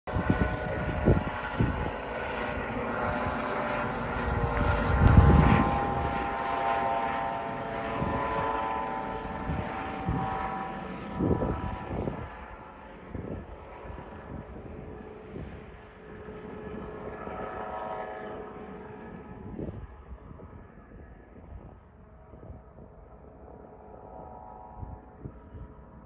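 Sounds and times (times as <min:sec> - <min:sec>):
helicopter droning overhead: 0:00.1 - 0:26.0.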